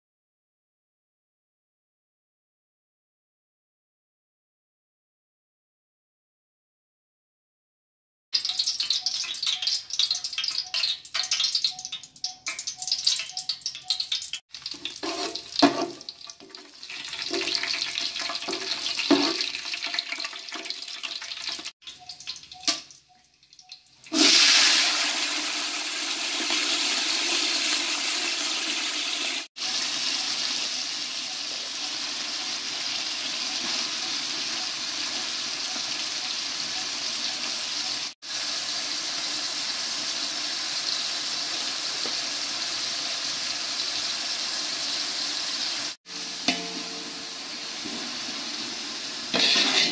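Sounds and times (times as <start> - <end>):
hot oil sizzling and crackling: 8.4 - 49.9
metal spatula scraping pot: 14.6 - 20.0, 46.1 - 49.9
onions hissing in oil: 24.1 - 49.9.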